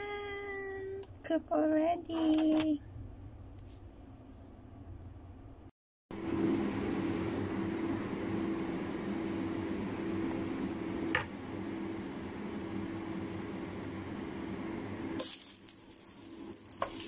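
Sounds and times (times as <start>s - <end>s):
fan humming: 6.2s - 17.0s.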